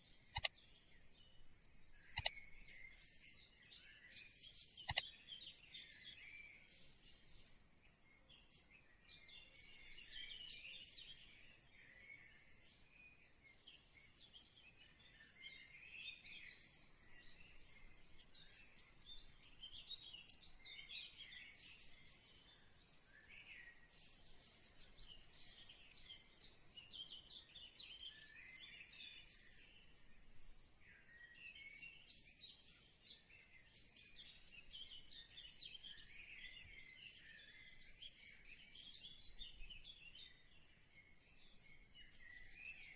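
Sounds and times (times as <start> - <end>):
small birds chirping: 0.0 - 42.9.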